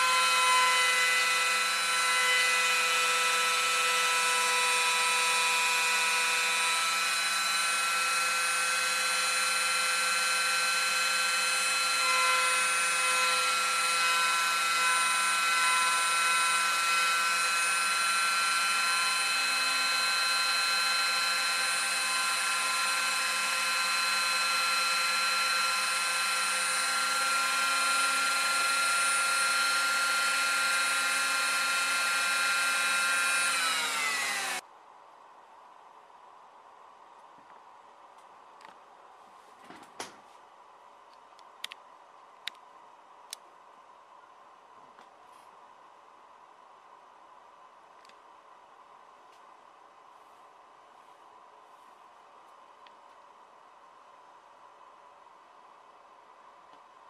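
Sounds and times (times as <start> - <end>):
rotary tool whine milling wood: 0.0 - 34.6.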